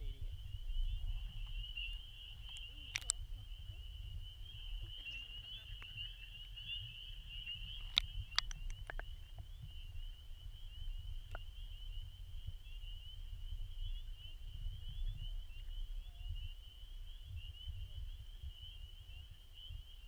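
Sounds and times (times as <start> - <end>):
frogs peeping in chorus: 0.0 - 20.0
sharp clicks: 2.5 - 3.2, 7.8 - 9.1.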